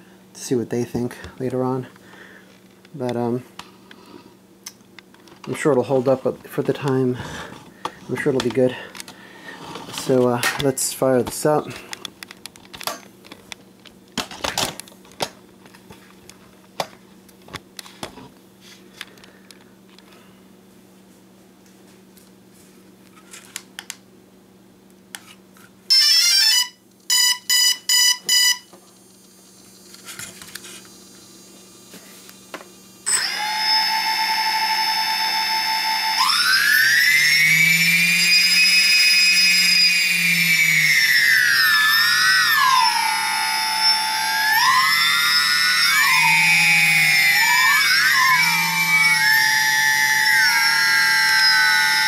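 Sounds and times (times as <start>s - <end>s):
electric motors whining: 29.2s - 52.0s
rising startup tone: 33.1s - 52.0s.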